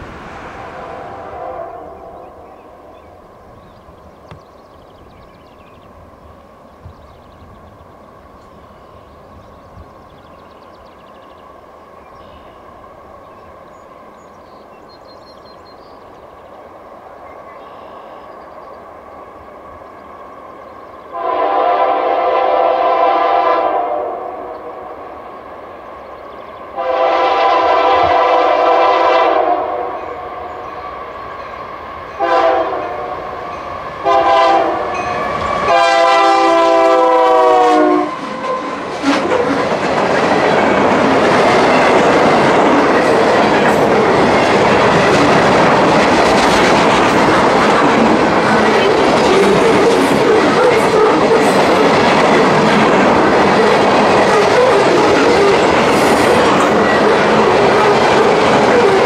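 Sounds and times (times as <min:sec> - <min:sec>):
train wheels rumbling on rails: 0:00.0 - 0:59.0
locomotive air horn blasts: 0:00.8 - 0:02.1, 0:21.2 - 0:24.5, 0:26.8 - 0:30.3, 0:32.2 - 0:33.2, 0:34.0 - 0:38.6.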